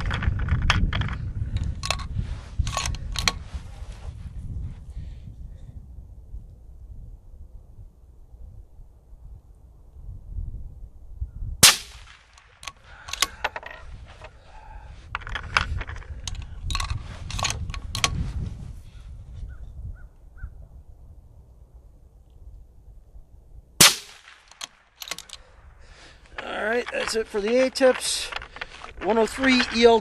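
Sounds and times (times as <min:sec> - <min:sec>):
suppressed rifle shots: 0:11.6 - 0:13.4, 0:23.8 - 0:25.2
rifle action clicking: 0:11.6 - 0:13.8, 0:23.8 - 0:25.5.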